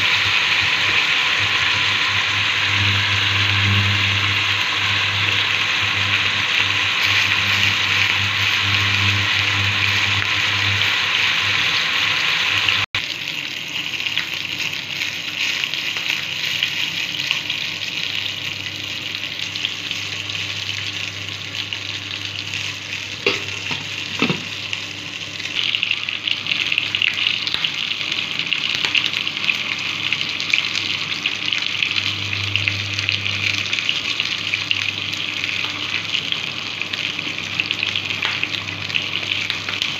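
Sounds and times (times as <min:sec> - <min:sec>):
low hum: 0:00.0 - 0:13.0
water hissing and bubbling in pot: 0:00.0 - 0:39.9.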